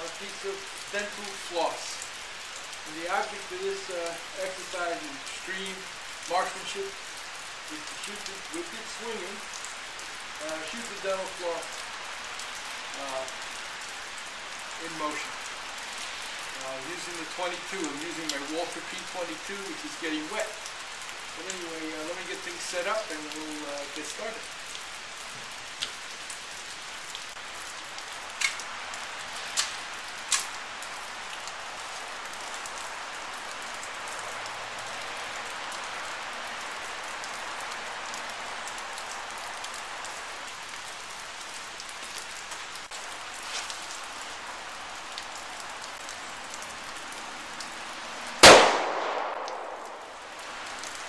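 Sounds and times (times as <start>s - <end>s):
steady rain hiss: 0.0s - 51.0s
pistol shot: 48.4s - 50.0s.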